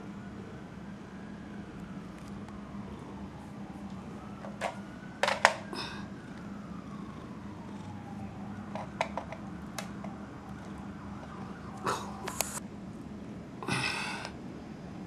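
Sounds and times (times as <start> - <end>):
faint gliding siren-like tone: 0.0 - 12.6
steady low hum: 0.0 - 15.0
sharp clicks and knocks: 8.7 - 10.2.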